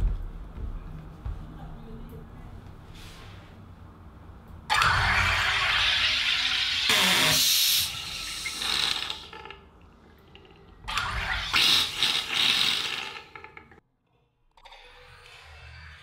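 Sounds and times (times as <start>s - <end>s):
soda maker gas hiss: 5.0s - 9.3s.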